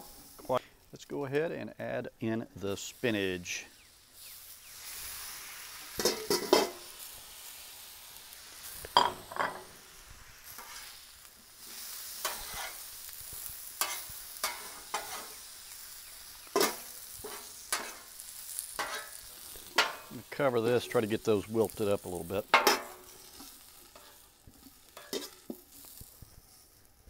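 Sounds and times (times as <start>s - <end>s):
potatoes sizzling on a griddle: 0.0s - 1.5s, 2.6s - 27.0s
metal spatulas scraping griddle: 6.0s - 6.9s, 10.5s - 11.0s, 11.6s - 15.5s, 16.5s - 20.9s, 22.5s - 24.2s, 24.9s - 26.0s.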